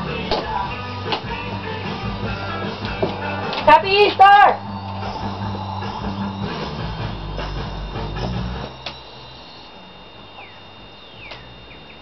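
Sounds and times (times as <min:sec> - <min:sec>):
music with low bass line: 0:00.0 - 0:12.0.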